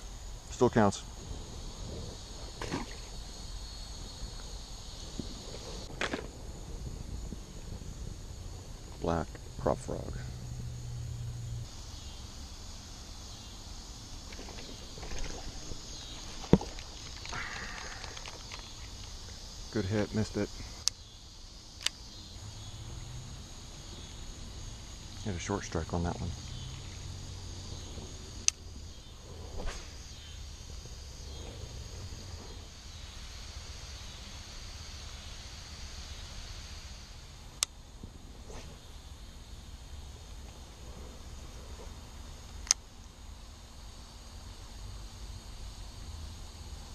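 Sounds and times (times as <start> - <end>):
crickets chirring: 0.0 - 46.9
light rain on pond and leaves: 11.6 - 38.2
sharp click: 21.8 - 22.0.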